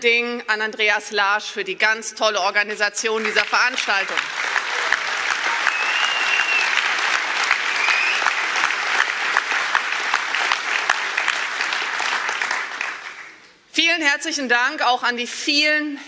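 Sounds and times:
audience applauding: 3.2 - 13.4.

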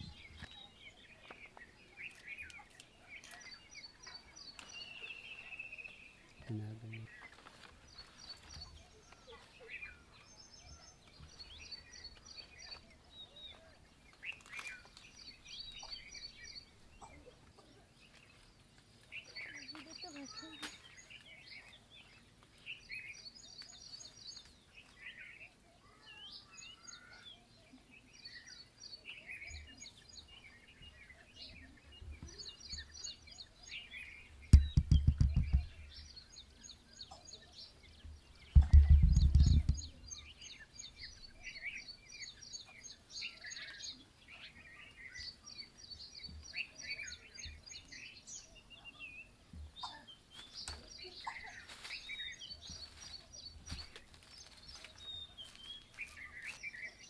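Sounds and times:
small birds chirping: 0.0 - 57.0
low rumbling thuds: 34.5 - 35.8, 38.5 - 39.9.

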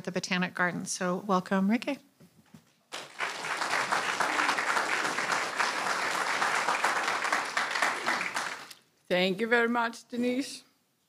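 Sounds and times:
audience applauding: 2.9 - 8.8.

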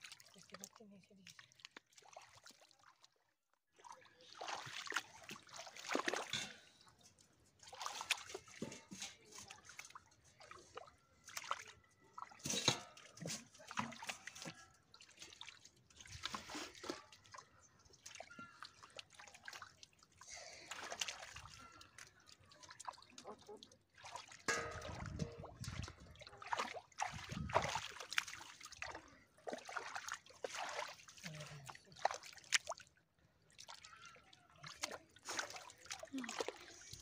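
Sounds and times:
hands splashing in wet mud: 3.8 - 6.4, 20.6 - 32.9, 34.6 - 36.8.

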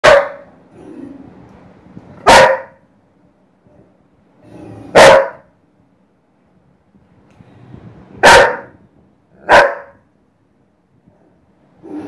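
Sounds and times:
dog barking: 0.0 - 0.5, 2.2 - 2.8, 4.9 - 5.5, 8.2 - 8.8, 9.4 - 10.0.

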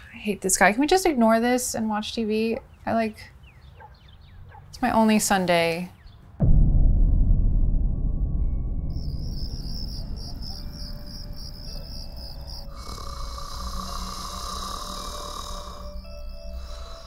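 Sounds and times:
low rumble: 6.4 - 14.6
crickets chirping: 8.9 - 17.0
insect buzz: 8.9 - 17.0.

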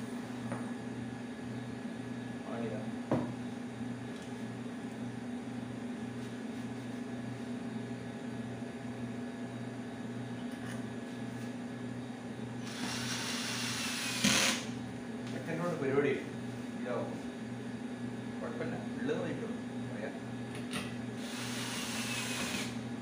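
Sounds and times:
steady low hum: 0.0 - 23.0
cordless drill driving screw: 12.6 - 14.7, 21.2 - 22.8.

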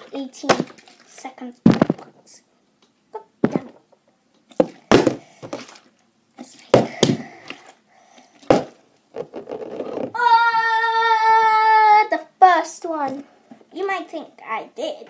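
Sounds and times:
plastic bottle thudding on wood: 1.7 - 2.0, 4.6 - 5.7, 6.7 - 7.2, 8.5 - 10.2.

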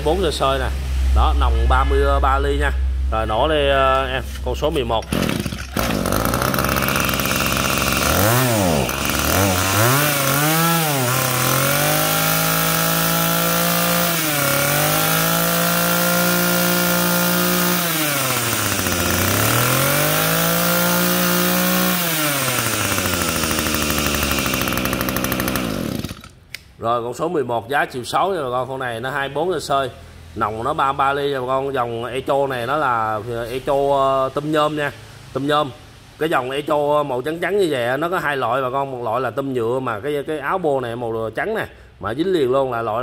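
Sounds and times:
brush cutter engine revving: 4.3 - 26.4.

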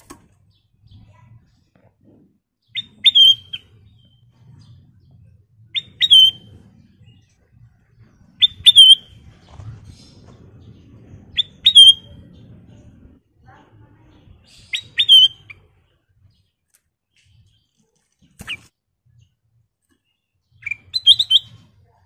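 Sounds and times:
bulbul whistled calls: 5.8 - 6.5, 8.4 - 9.1, 11.3 - 12.1, 14.5 - 15.6, 20.6 - 21.6.

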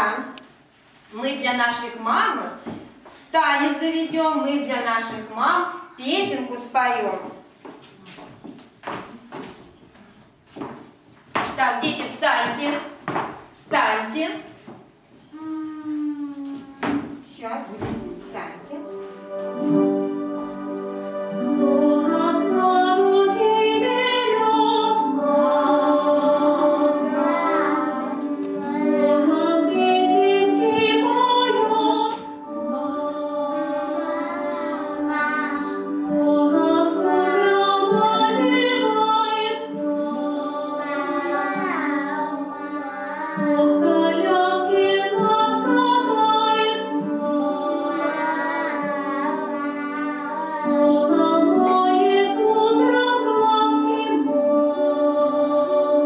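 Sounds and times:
musical accompaniment: 18.0 - 56.0
children and woman singing: 18.8 - 56.0.

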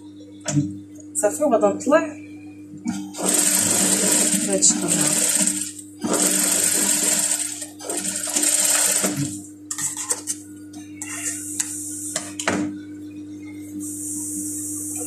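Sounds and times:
sewing machine motor hum: 2.9 - 10.0
sewing machine stitching: 3.1 - 9.4.

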